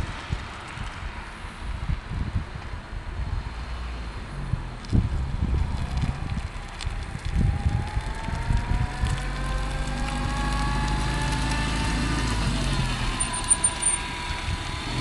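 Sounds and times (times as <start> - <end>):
wind buffeting microphone: 0.0 - 15.0
car engine reversing: 7.6 - 15.0.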